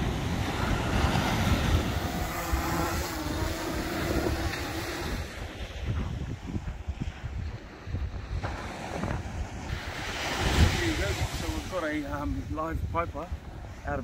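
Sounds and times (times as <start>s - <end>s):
drone propellers humming: 0.0s - 6.4s
wind rumble on microphone: 0.0s - 14.0s.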